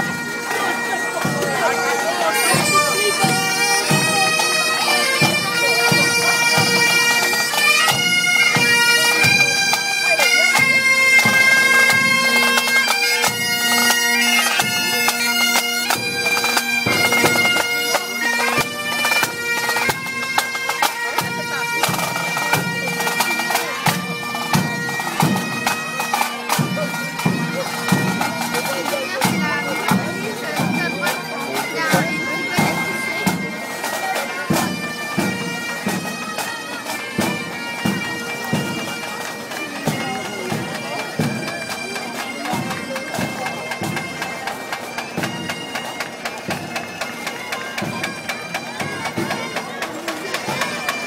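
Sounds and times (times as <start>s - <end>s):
bagpipes playing: 0.0s - 51.0s
marching drum beats: 0.0s - 51.0s.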